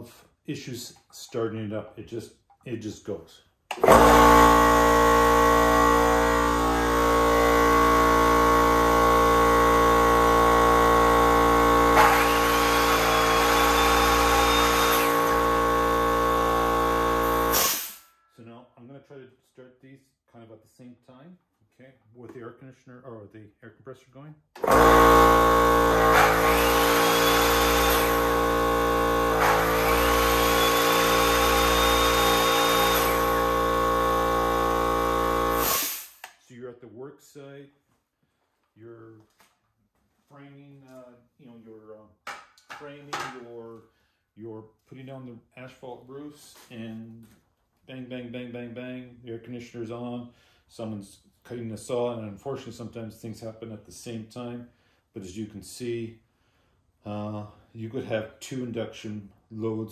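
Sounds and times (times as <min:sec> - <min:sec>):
electric motor humming: 0:03.8 - 0:18.0, 0:24.6 - 0:36.2.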